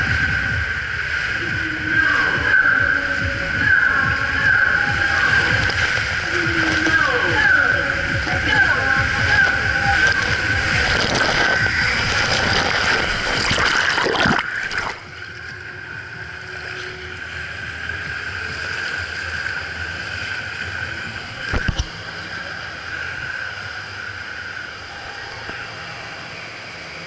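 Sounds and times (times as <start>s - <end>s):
hall background noise: 0.0s - 14.2s
water rushing through slide tube: 0.0s - 27.0s
splash into water: 9.3s - 15.0s.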